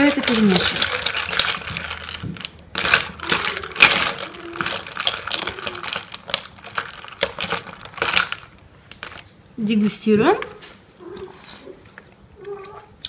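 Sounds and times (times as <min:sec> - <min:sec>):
ice clinking against spoon and pitcher: 0:00.0 - 0:09.2.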